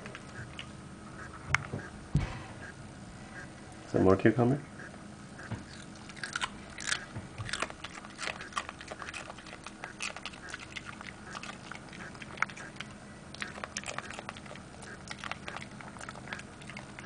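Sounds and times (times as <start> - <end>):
dog crunching cucumber: 5.6 - 17.0.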